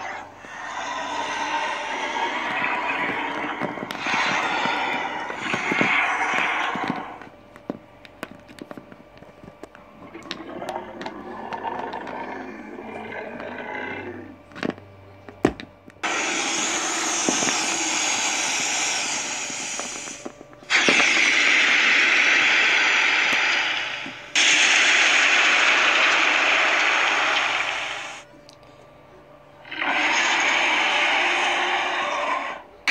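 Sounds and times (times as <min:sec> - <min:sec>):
loud rushing hiss: 0:00.0 - 0:07.2, 0:16.0 - 0:28.2.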